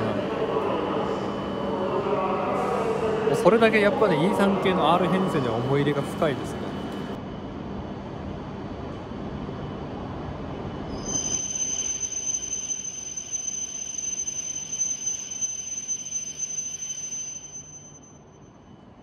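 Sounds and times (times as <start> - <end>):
train rumbling as it slows: 0.0 - 19.0
high-pitched brake squeal: 10.8 - 18.8.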